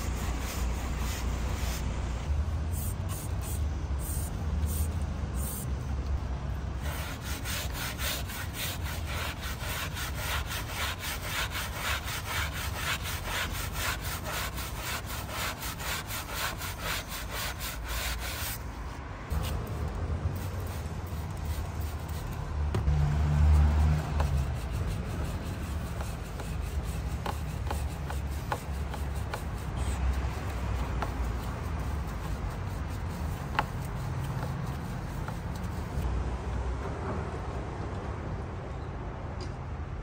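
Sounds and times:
hand scrubbing motorcycle: 0.0 - 2.0, 6.8 - 36.1.

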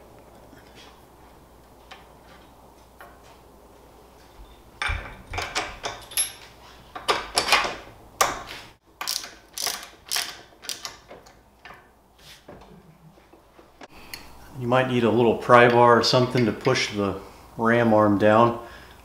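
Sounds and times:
bolt clinking into bracket: 4.8 - 11.4
socket ratchet clicking: 9.0 - 11.3.

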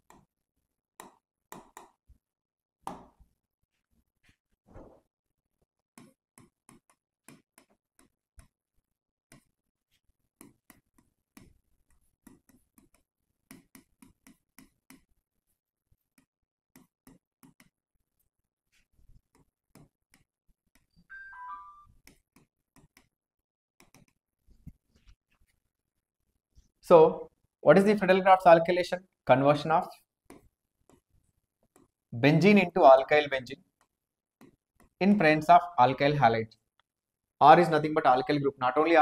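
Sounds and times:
stylus tapping on screen: 1.0 - 2.0, 6.0 - 8.6, 10.4 - 15.2, 16.1 - 17.8, 19.2 - 23.1, 23.8 - 25.5.

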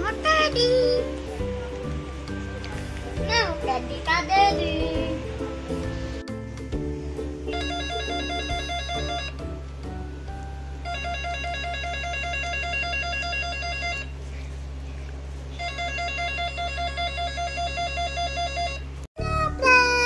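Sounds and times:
background music: 0.0 - 12.0, 19.2 - 20.0
electronic trilling ringtone: 7.4 - 9.6, 10.8 - 14.2, 15.6 - 19.0.

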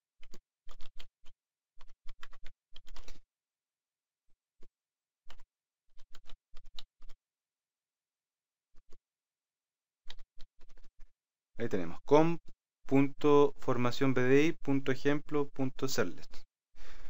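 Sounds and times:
computer keyboard typing: 0.2 - 3.2, 5.3 - 7.2.

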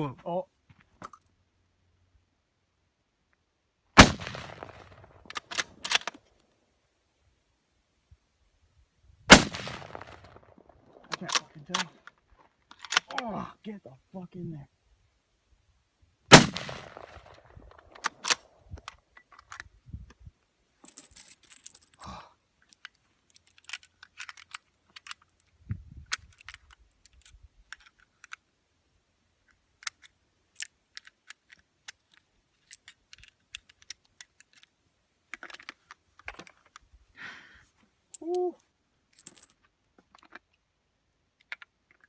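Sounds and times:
rifle shot: 4.0 - 5.9, 9.3 - 10.5, 16.3 - 18.5
rifle handling clicks and rattles: 4.1 - 6.6, 9.6 - 13.3, 16.6 - 20.2, 20.8 - 22.0, 22.6 - 28.6, 29.4 - 37.0, 39.0 - 40.7, 41.3 - 42.0.

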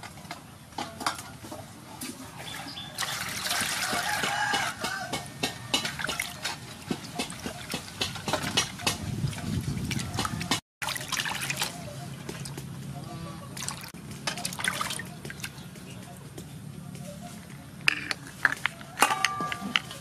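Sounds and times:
water splashing and sloshing: 1.0 - 16.3
shells knocking against metal basin: 17.8 - 20.0.

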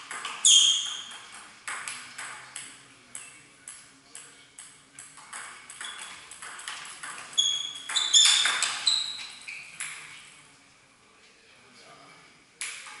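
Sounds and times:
shoe squeaks: 0.4 - 1.3, 5.8 - 6.2, 7.4 - 10.2.

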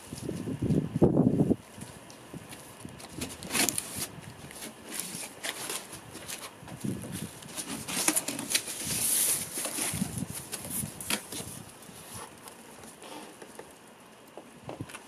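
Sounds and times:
cardboard box crackling and rustling: 1.7 - 13.7
cardboard handling: 1.8 - 13.7.

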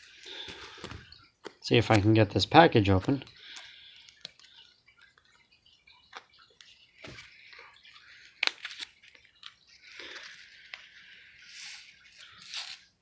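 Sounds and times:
seed packet crinkling: 7.8 - 12.9.

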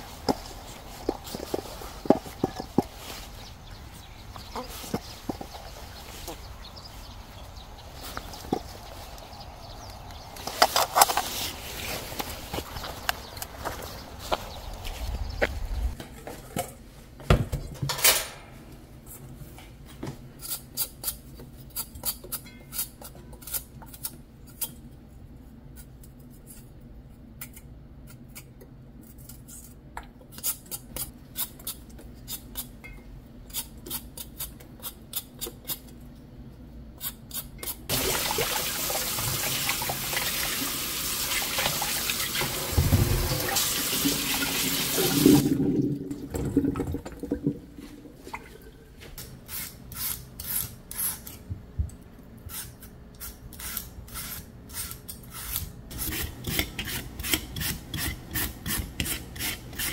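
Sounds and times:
water running into sink: 37.9 - 47.8.

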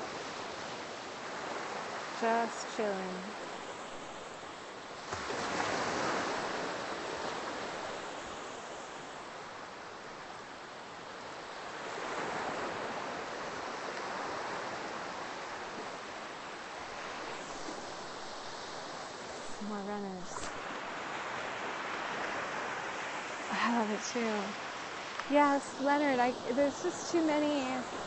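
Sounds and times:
ocean waves breaking on beach: 0.0 - 28.0.

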